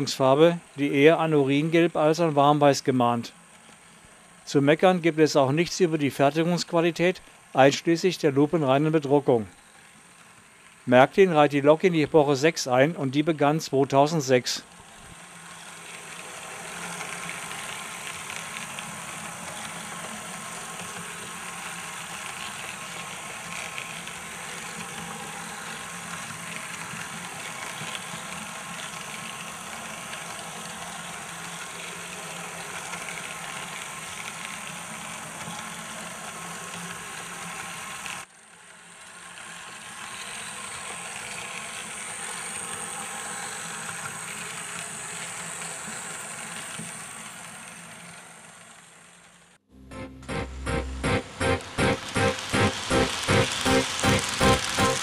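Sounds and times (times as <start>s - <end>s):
model train motor hum: 3.1s - 11.5s, 14.6s - 49.6s, 52.0s - 55.0s
wheels rolling on rails: 8.5s - 10.9s, 14.6s - 49.6s, 51.5s - 55.0s.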